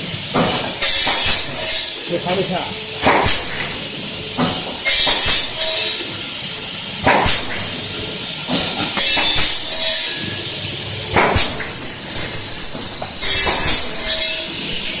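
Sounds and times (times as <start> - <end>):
machine high hiss: 0.0 - 15.0
nailing machine sharp knocks: 0.3 - 2.0, 3.0 - 6.0, 7.0 - 7.8, 8.5 - 10.4, 11.1 - 14.9.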